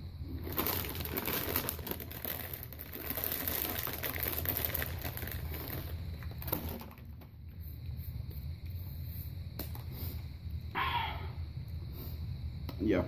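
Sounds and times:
low steady hum: 0:00.0 - 0:13.0
foil snack bag crackling: 0:00.2 - 0:07.1.

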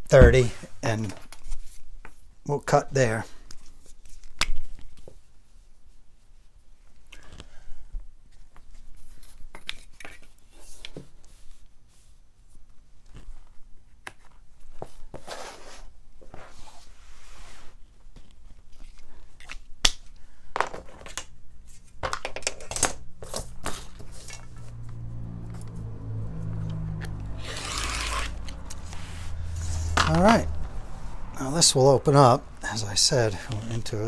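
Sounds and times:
pen and straightedge clicks and scrapes: 0:27.0 - 0:30.2
rotary cutter cutting fabric: 0:27.3 - 0:29.0.

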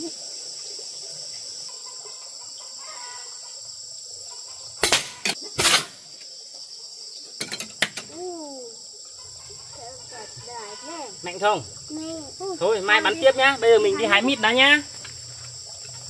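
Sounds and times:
crickets chirring: 0:00.0 - 0:16.0
bow snapping and arrow striking: 0:04.8 - 0:06.0.

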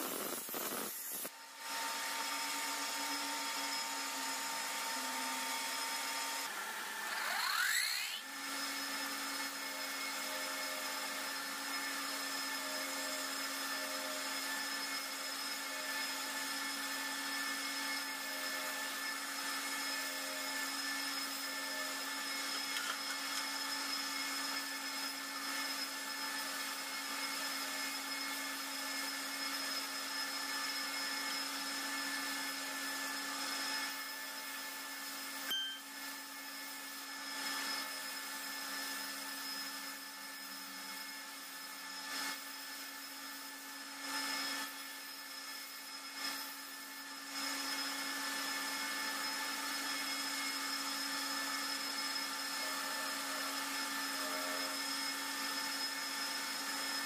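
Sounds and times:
knife blade grinding hiss: 0:00.0 - 0:01.3.

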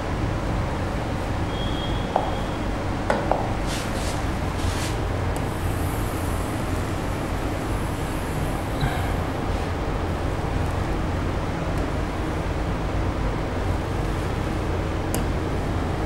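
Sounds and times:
background hum: 0:05.1 - 0:16.0.

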